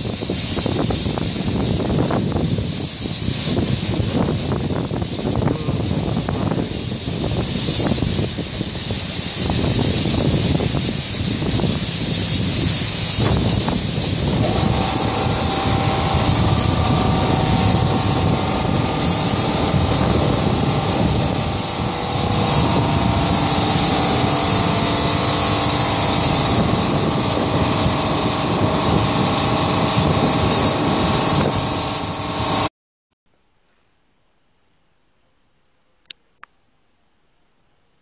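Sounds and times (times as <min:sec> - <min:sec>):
car wash machine rushing water: 0:00.0 - 0:32.7
faint machine whine: 0:14.2 - 0:32.7.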